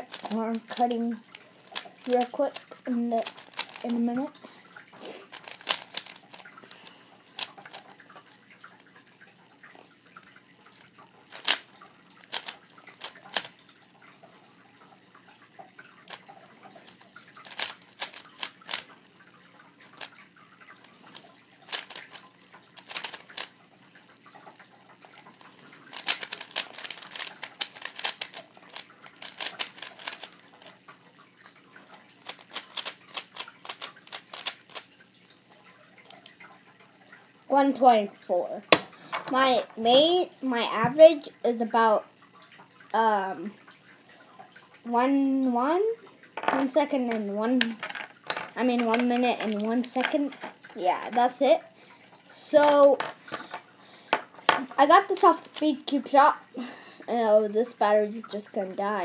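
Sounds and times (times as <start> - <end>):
speed cube layers clacking: 0.0 - 4.3, 5.3 - 8.0, 11.3 - 13.6, 16.1 - 18.9, 21.1 - 23.6, 25.1 - 30.8, 32.2 - 34.9, 47.1 - 51.4, 54.8 - 55.8.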